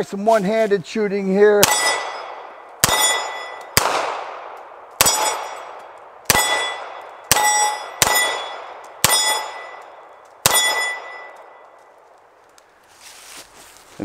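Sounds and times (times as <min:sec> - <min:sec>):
steel plate targets ringing: 0:01.6 - 0:03.8, 0:05.0 - 0:11.8
pistol shots: 0:01.6 - 0:11.6.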